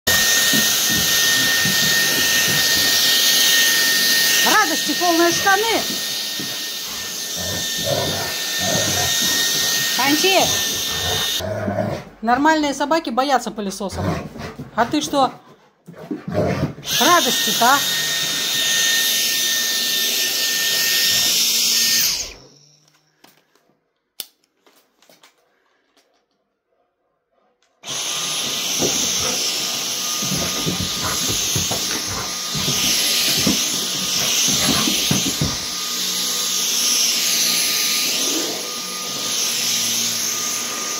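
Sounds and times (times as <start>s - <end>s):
vacuum cleaner whining: 0.1s - 11.5s, 15.9s - 23.7s, 27.8s - 40.9s.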